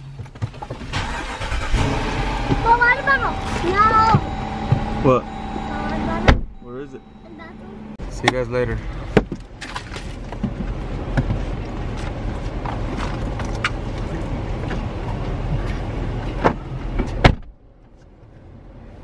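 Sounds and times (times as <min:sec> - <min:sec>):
car engine idling: 0:00.0 - 0:19.0
hum inside closed car cabin: 0:00.0 - 0:19.0
outdoor noise: 0:00.0 - 0:19.0
car door slamming shut: 0:06.2 - 0:06.6, 0:16.4 - 0:17.6
rustling and small knocks: 0:09.1 - 0:17.2.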